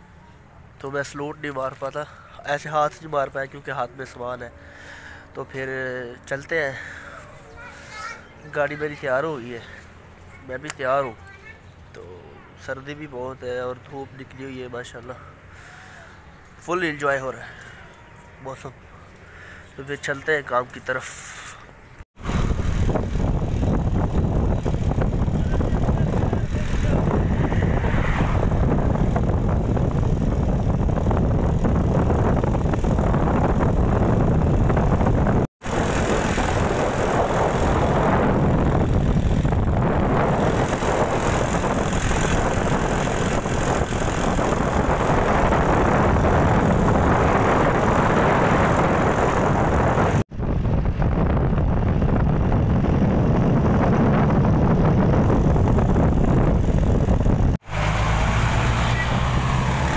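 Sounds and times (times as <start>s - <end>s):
vehicle engine and road noise: 0.0s - 59.9s.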